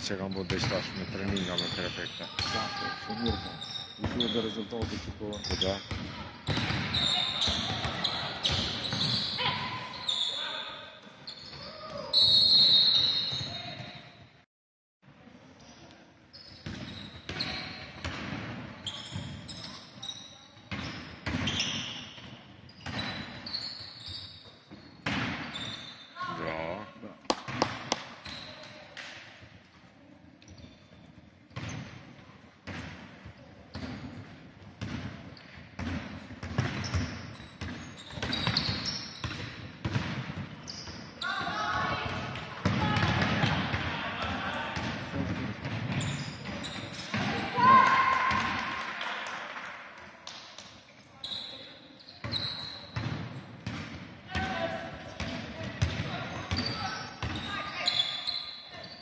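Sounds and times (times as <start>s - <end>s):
basketball bouncing on gym floor: 0.4s - 9.7s, 33.7s - 47.5s, 52.2s - 57.5s.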